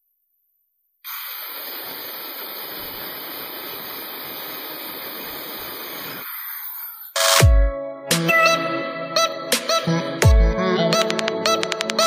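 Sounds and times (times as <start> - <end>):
electric drill boring wood: 1.1 - 7.4.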